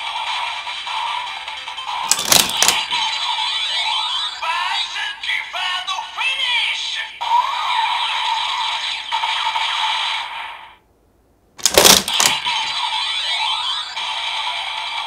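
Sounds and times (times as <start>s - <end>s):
plastic clacks: 2.1s - 3.0s, 11.6s - 12.5s.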